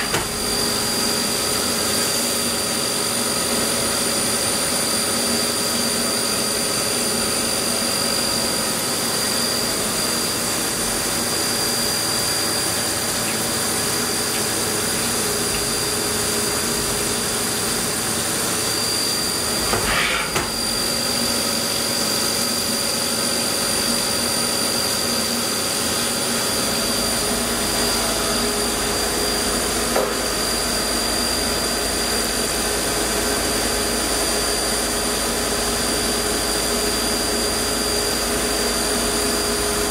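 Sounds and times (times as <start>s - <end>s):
milling machine cutting: 0.0s - 2.1s, 8.7s - 22.5s
high whine: 4.5s - 39.8s.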